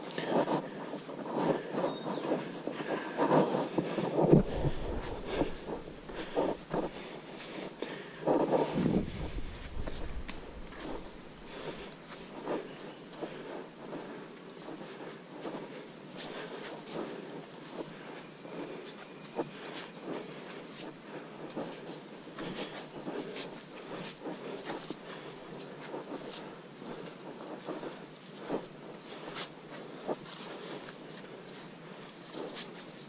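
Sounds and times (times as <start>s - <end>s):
background hiss: 0.0s - 33.0s
footsteps on muddy leafy trail: 0.2s - 14.0s
soft crunches and knocks: 4.2s - 6.9s.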